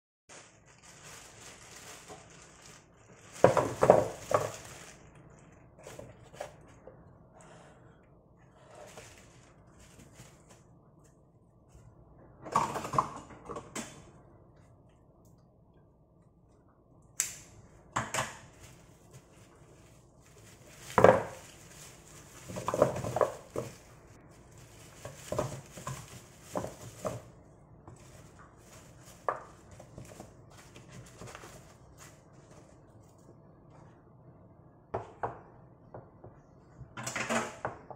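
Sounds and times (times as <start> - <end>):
plastic and paper crinkling: 0.3 - 6.8, 8.6 - 10.8, 18.4 - 33.3.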